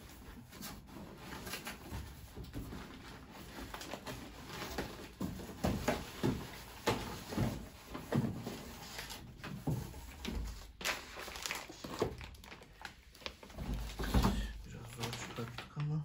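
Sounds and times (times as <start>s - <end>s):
plastic bag crinkling: 10.3s - 16.0s.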